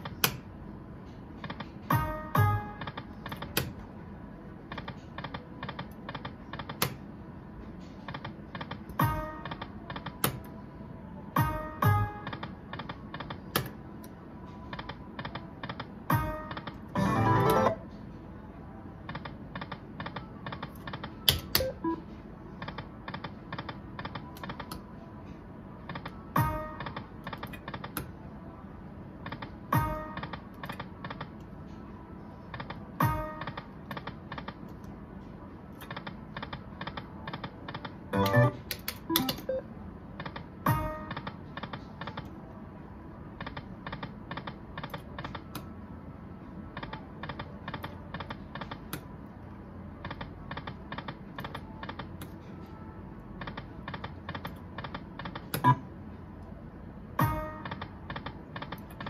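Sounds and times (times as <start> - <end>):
slot machine reels clicking: 14.8 - 17.8, 35.8 - 39.6.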